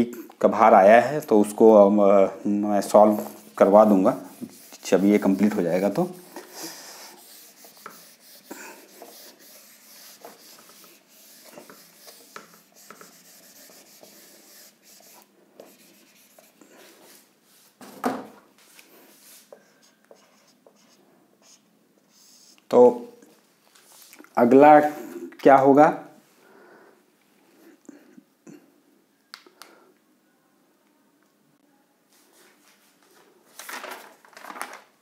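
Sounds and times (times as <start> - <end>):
marker writing on whiteboard: 2.8 - 17.2, 19.5 - 22.6
eraser rubbing whiteboard: 2.9 - 17.7
thump: 17.8 - 18.4.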